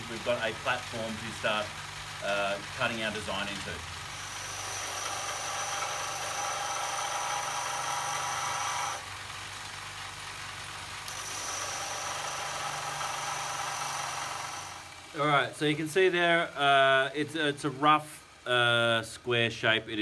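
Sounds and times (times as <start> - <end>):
steel grinding with high whine: 0.0 - 9.2, 11.0 - 15.4
bench grinder motor hum: 0.0 - 15.5.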